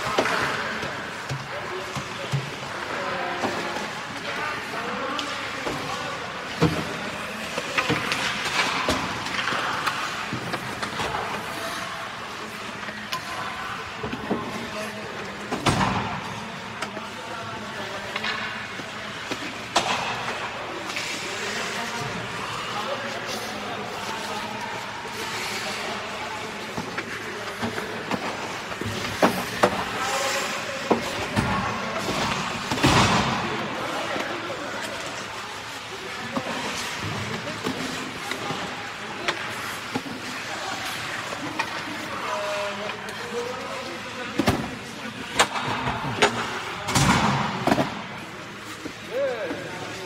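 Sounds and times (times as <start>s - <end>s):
skates scraping on ice: 0.0s - 15.5s, 16.2s - 46.8s
sticks hitting pucks: 0.0s - 50.0s
skate blades scraping ice: 20.3s - 31.2s.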